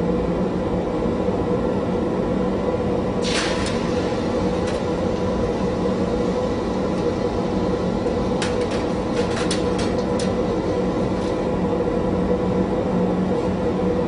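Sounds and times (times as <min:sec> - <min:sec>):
glassworking equipment roaring: 0:03.2 - 0:14.0.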